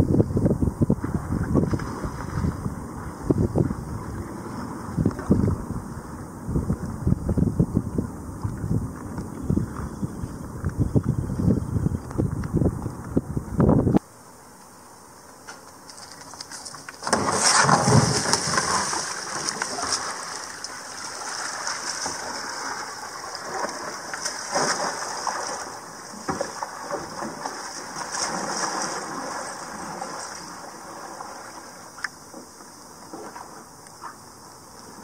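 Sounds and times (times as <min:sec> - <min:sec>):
paddle strokes: 0:15.5 - 0:35.0
water splashing: 0:17.0 - 0:32.1.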